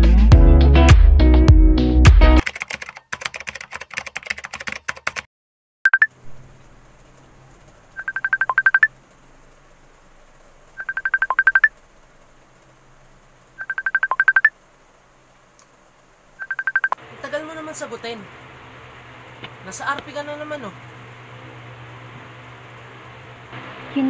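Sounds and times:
phone ringtone trilling beeps: 0:05.9 - 0:06.1, 0:08.0 - 0:08.9, 0:10.8 - 0:11.7, 0:13.6 - 0:14.5, 0:16.4 - 0:17.0.

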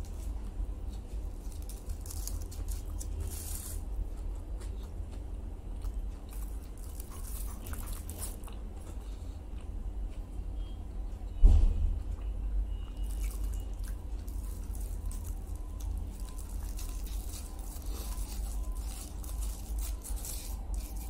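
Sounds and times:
chewing and biting food: 0:00.0 - 0:10.2, 0:12.0 - 0:21.0
steady low hum: 0:00.0 - 0:21.0
foil wrapping crackling: 0:01.0 - 0:03.9, 0:13.0 - 0:21.0.

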